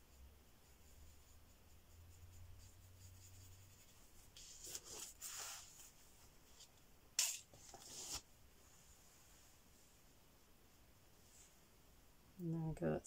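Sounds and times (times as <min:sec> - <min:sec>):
paintbrush strokes: 0:00.0 - 0:06.8.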